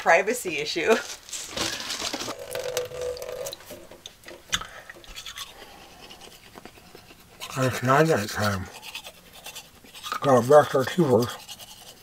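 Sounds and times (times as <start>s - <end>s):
toothbrush scrubbing teeth: 5.0s - 12.0s.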